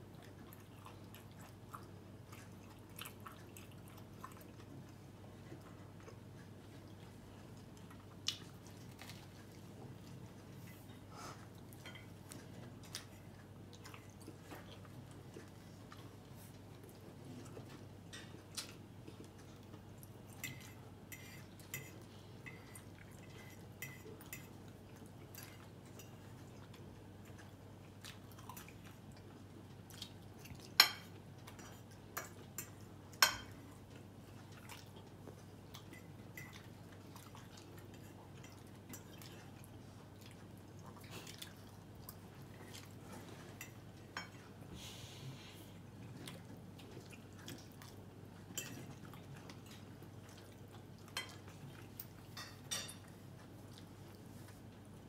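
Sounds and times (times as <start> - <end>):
faint steady hum: 0.0 - 55.0
soft chewing: 0.0 - 55.0
cutlery clinking on a plate: 30.8 - 33.6, 52.3 - 53.1.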